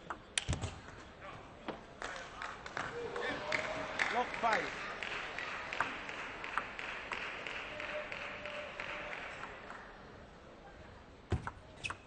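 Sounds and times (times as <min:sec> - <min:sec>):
crowd applauding: 0:02.0 - 0:10.0.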